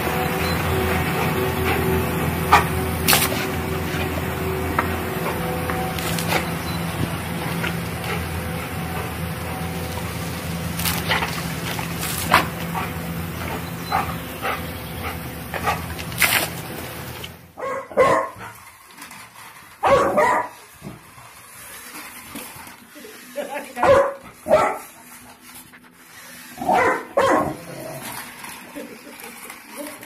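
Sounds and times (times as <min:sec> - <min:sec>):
puppy barking: 0:17.6 - 0:18.6, 0:19.8 - 0:20.6, 0:23.8 - 0:24.9, 0:26.6 - 0:27.6.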